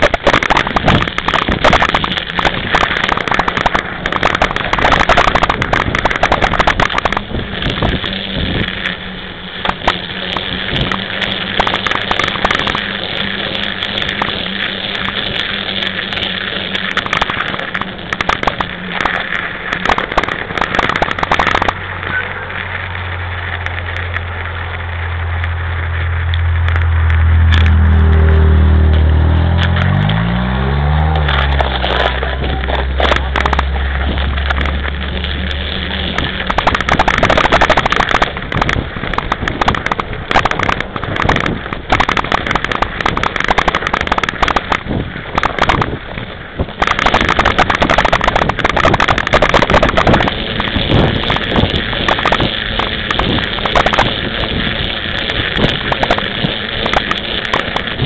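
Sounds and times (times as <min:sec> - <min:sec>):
bike tyres and frame rattling: 0:00.0 - 0:58.0
vehicle engine passing: 0:21.7 - 0:38.9.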